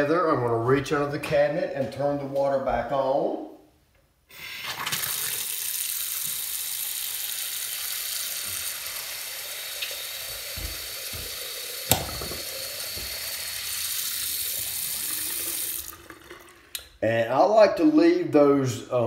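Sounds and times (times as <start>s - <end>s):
faucet water running into sink: 4.4s - 16.8s
sharp knock: 11.9s - 12.5s.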